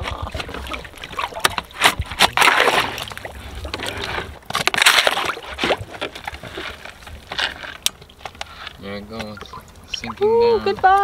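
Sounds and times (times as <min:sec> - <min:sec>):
plastic blade scraping hull: 0:00.0 - 0:08.8
water splashing against hull: 0:00.0 - 0:11.0.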